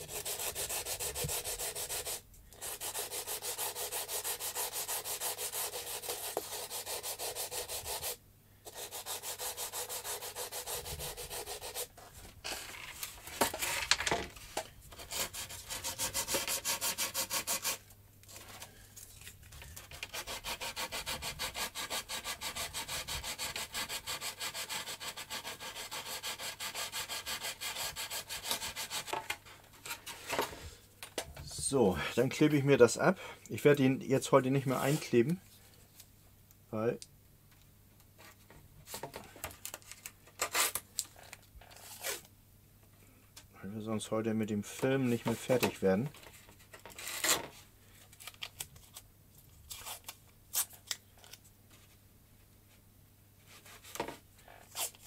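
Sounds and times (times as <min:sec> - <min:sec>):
sandpaper rubbing on wood: 0:00.0 - 0:11.9, 0:15.0 - 0:17.8, 0:19.9 - 0:29.1.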